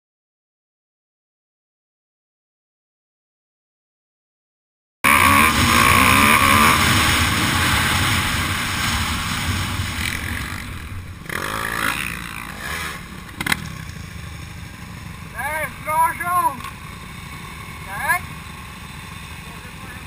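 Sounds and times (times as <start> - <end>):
dirt bike engine revving: 5.0 - 20.0
wind rushing: 5.6 - 12.9.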